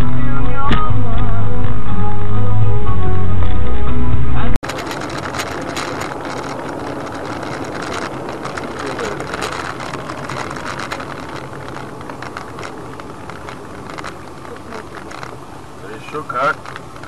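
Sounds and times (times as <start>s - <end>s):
road and engine noise: 0.0s - 17.0s
vehicle clicks and rattles: 4.6s - 17.0s.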